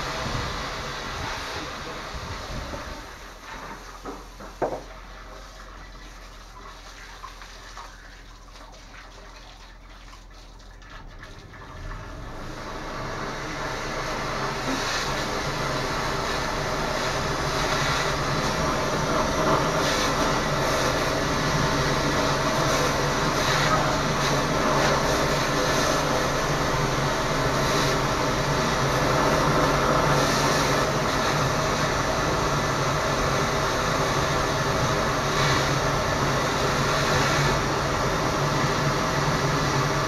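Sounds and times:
drain jetter machine hum: 0.0s - 40.0s.

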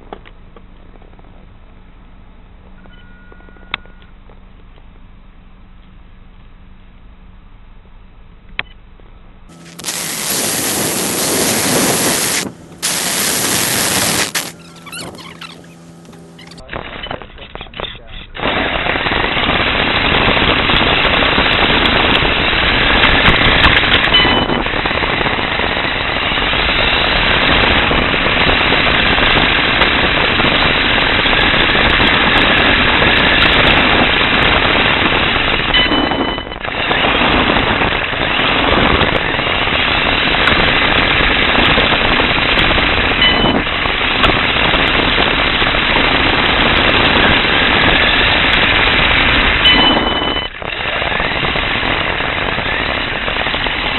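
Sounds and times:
high whine: 0.0s - 53.9s
rc car rattling over pavement: 17.3s - 53.9s.

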